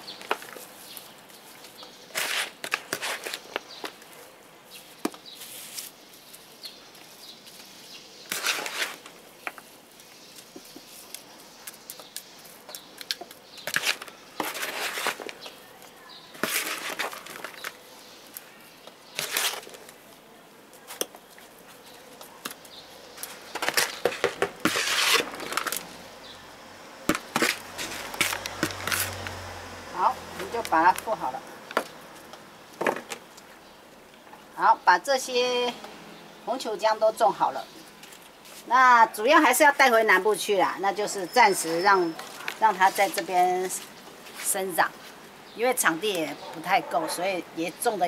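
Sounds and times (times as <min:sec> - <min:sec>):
trowel scraping soil: 0:02.1 - 0:03.9, 0:08.3 - 0:09.1, 0:13.7 - 0:15.5, 0:16.3 - 0:17.8, 0:19.1 - 0:19.8, 0:23.2 - 0:25.8, 0:27.2 - 0:29.3.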